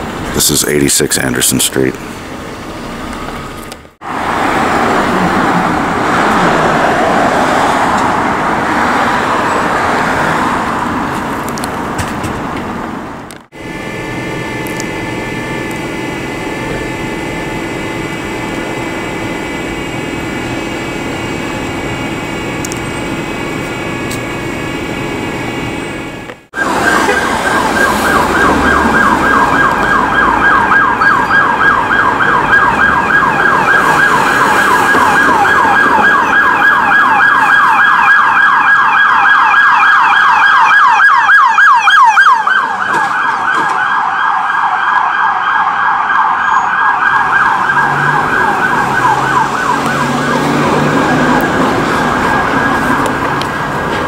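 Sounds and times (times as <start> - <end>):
emergency vehicle siren yelping: 13.1 - 54.0.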